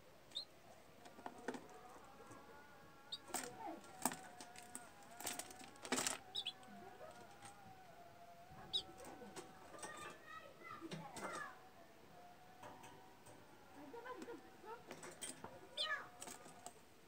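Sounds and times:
high bird chirps: 0:00.3 - 0:00.5, 0:06.2 - 0:06.6, 0:08.6 - 0:08.9
budgerigars chattering: 0:06.3 - 0:06.6, 0:08.7 - 0:08.9.

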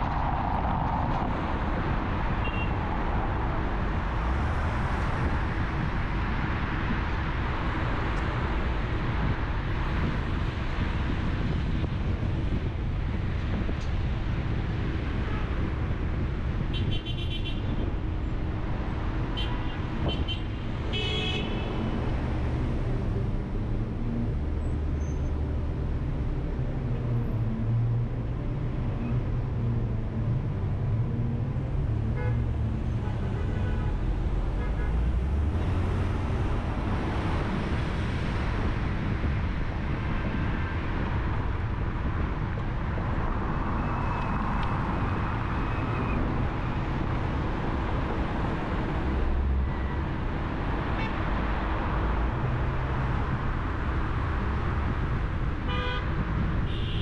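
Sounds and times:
engine and tyre rumble: 0:00.0 - 0:57.0
car horn toots: 0:55.7 - 0:56.1, 0:56.7 - 0:57.0.

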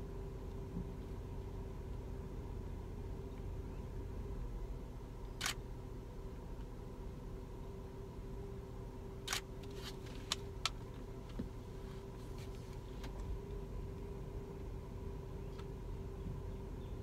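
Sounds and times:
low vehicle engine hum: 0:00.0 - 0:17.0
camera shutter firing: 0:05.4 - 0:05.6, 0:09.3 - 0:09.5.

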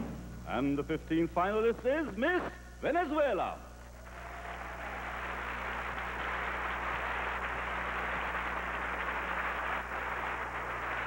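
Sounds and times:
low steady hum: 0:00.0 - 0:11.0
audience applause: 0:04.0 - 0:11.0.

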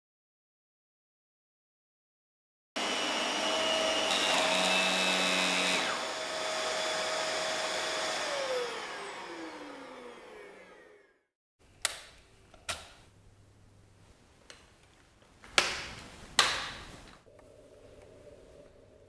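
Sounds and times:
vacuum cleaner motor whine: 0:02.8 - 0:11.2.

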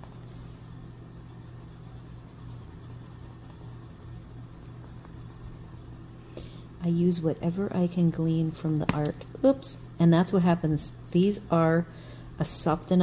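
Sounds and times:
steady low hum: 0:00.0 - 0:13.0
pencil scratching on paper: 0:01.3 - 0:04.2.

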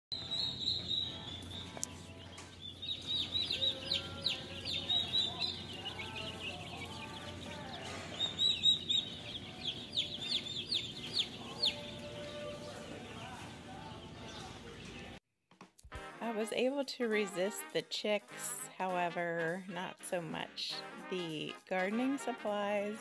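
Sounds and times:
baby chicks peeping: 0:00.1 - 0:15.2.

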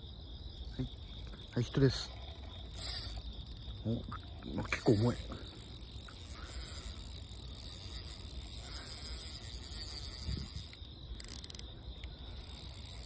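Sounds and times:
insect chirring: 0:00.0 - 0:13.0
small clicks: 0:02.7 - 0:13.0.

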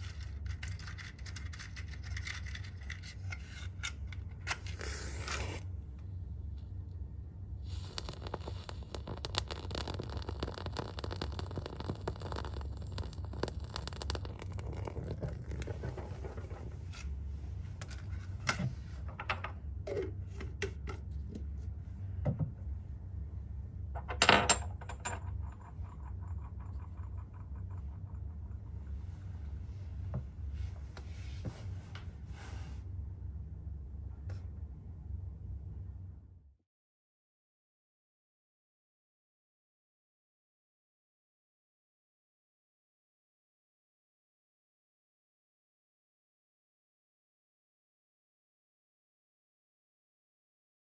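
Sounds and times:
flames rumbling: 0:07.6 - 0:16.9
soft crackles and clicks: 0:07.6 - 0:17.1
clatter: 0:24.3 - 0:28.8.

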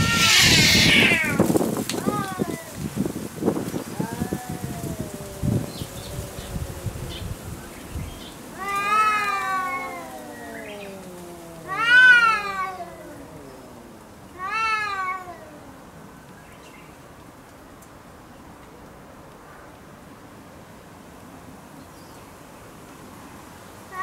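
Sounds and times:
cats yowling: 0:00.0 - 0:02.8, 0:03.8 - 0:16.0
cat growling low: 0:03.9 - 0:16.0.

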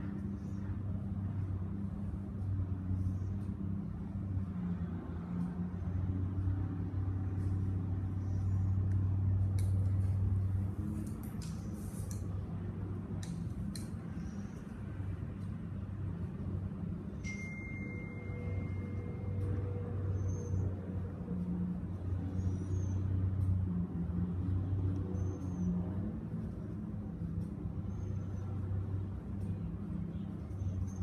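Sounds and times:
low background rumble and hum: 0:00.0 - 0:31.0.

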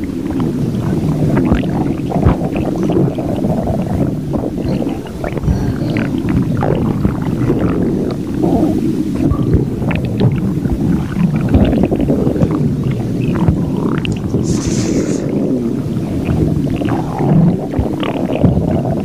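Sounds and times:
stomach growling and gurgling: 0:00.0 - 0:19.0.

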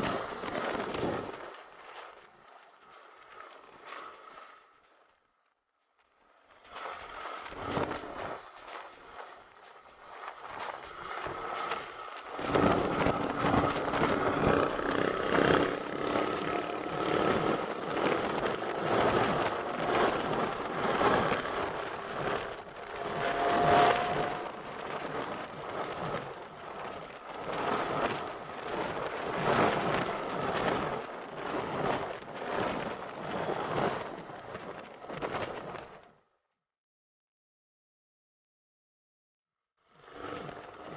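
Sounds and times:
wind buffeting microphone: 0:07.1 - 0:36.0
motorcycle engine: 0:12.4 - 0:20.7, 0:21.4 - 0:24.5.

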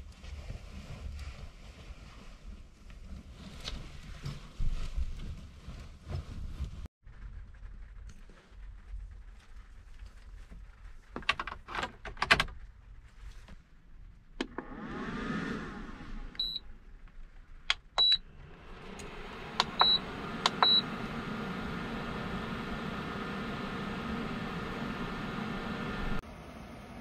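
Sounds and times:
cooling fan hiss: 0:15.8 - 0:27.0
handling clicks and button presses: 0:19.0 - 0:20.9.

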